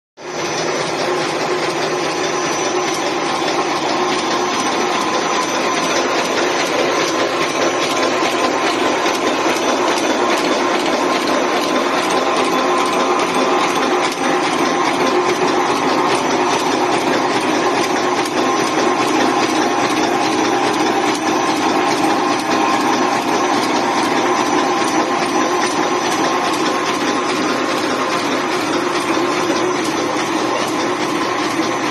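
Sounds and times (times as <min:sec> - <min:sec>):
machine running: 0:00.2 - 0:31.9
rapid mechanical clicking: 0:00.2 - 0:31.9.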